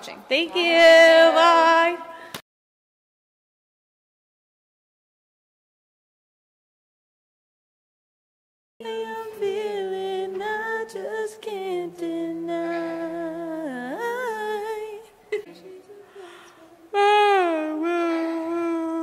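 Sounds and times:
women humming and singing: 8.8 - 19.0.

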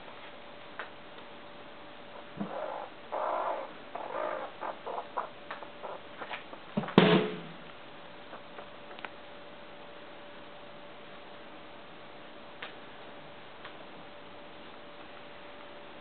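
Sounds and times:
baby squirrels squeaking: 2.1 - 6.7, 8.2 - 8.8
sudden loud knock: 6.8 - 7.5.

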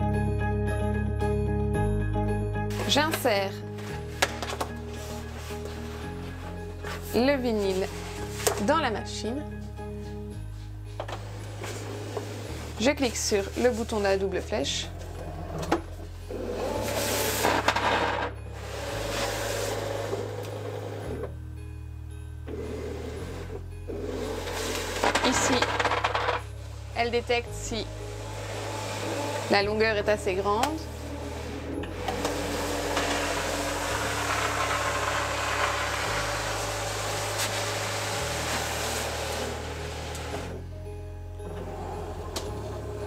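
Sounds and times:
cutting machine whirring: 28.0 - 29.7, 30.9 - 40.5.

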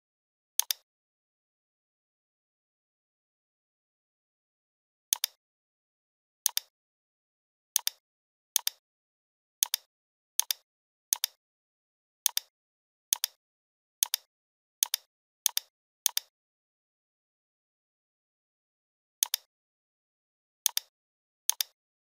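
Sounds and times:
computer mouse button clicking: 0.6 - 0.8, 5.1 - 5.4, 9.6 - 10.6, 14.0 - 16.3, 19.2 - 19.5, 21.5 - 21.8.

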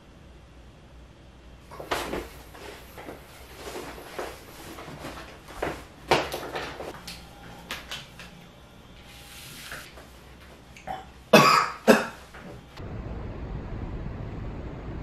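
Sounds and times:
man coughing: 10.9 - 12.2.

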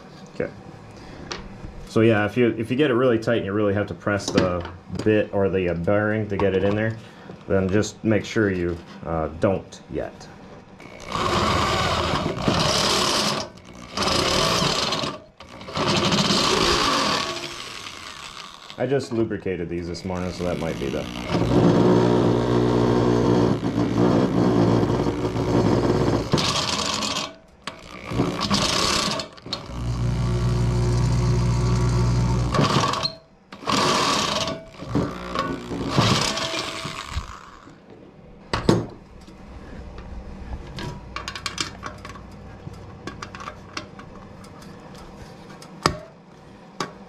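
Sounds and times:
electric drill cutting metal: 10.8 - 18.8, 20.0 - 37.8.

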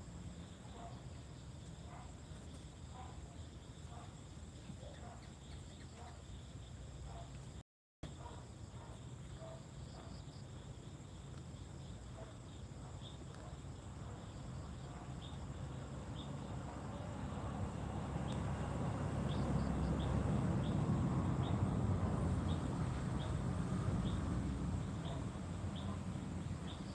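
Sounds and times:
high insect chirps: 8.8 - 26.9.

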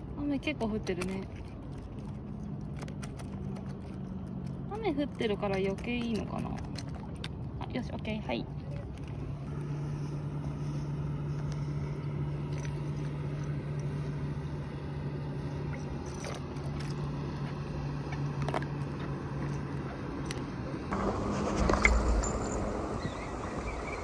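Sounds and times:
low engine hum: 0.0 - 24.0
loud rushing noise: 20.9 - 24.0.

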